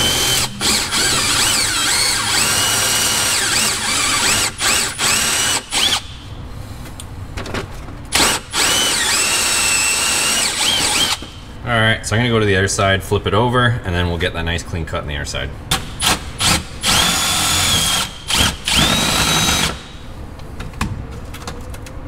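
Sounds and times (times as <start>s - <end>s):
cordless drill boring through plastic: 0.0s - 6.1s, 8.2s - 11.4s, 16.0s - 20.0s.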